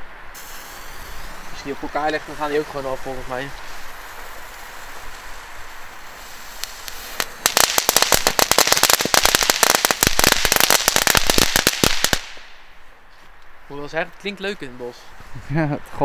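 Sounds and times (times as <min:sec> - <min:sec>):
crackling ribbons popping: 0:03.4 - 0:12.4.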